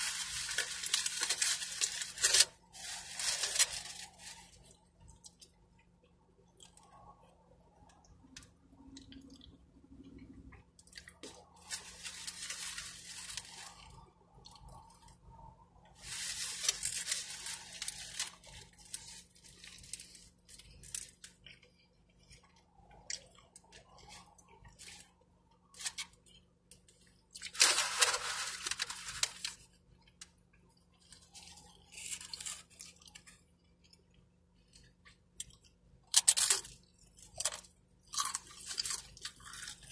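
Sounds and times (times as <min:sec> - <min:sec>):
foil and paper wrapper rustling: 0:00.0 - 0:04.8, 0:11.2 - 0:14.1, 0:16.0 - 0:21.3, 0:27.4 - 0:29.7
person chewing food: 0:03.4 - 0:27.6, 0:29.4 - 0:39.9.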